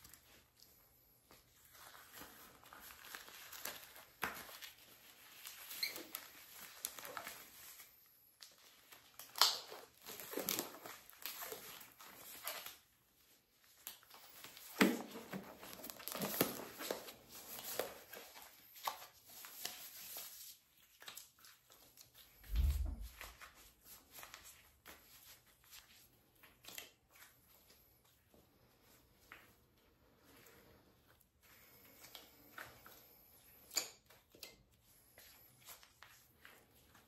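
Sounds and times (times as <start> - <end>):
rubber gloves squeaking: 0.0 - 28.4
low thump: 22.5 - 23.1.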